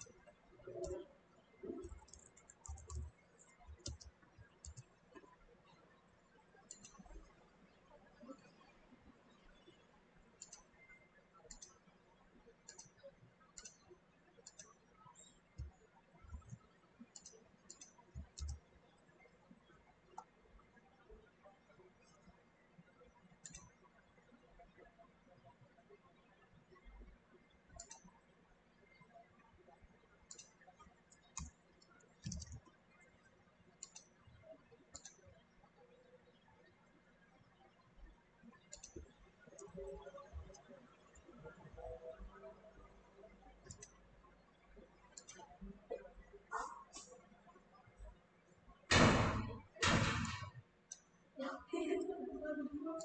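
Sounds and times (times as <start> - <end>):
computer mouse clicks: 0.0 - 5.3, 6.6 - 7.4, 10.3 - 11.9, 12.6 - 18.7, 20.1 - 20.4, 23.4 - 23.8, 27.7 - 28.2, 30.2 - 33.1, 33.8 - 35.4, 38.6 - 42.2, 43.6 - 44.0, 45.1 - 47.2, 48.9 - 51.1
low room hum: 0.0 - 53.0.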